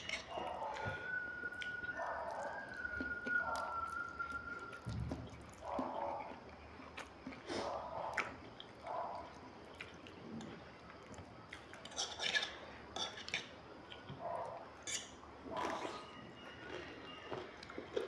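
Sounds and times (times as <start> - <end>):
noodles chewed and slurped: 0.0 - 14.1.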